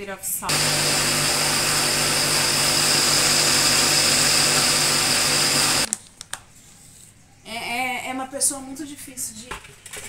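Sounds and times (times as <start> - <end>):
blender whirring: 0.5 - 5.9.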